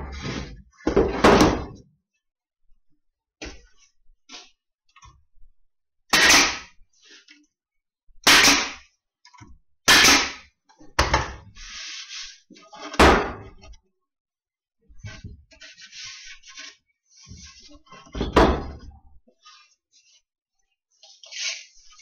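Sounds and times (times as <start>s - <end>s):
nail gun shots into wood: 6.1s - 6.7s, 8.2s - 8.8s, 9.9s - 10.4s.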